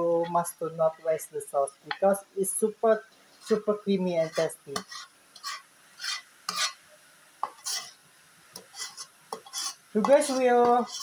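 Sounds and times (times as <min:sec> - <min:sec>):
person speaking: 0:00.0 - 0:04.9, 0:10.0 - 0:11.0
metal ladle scraping frying pan: 0:03.3 - 0:06.8, 0:07.4 - 0:08.0, 0:08.6 - 0:11.0.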